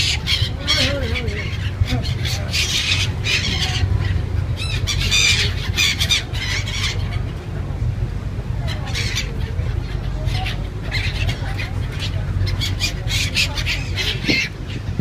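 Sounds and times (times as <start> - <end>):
gulls squawking: 0.0 - 7.6, 8.6 - 15.0.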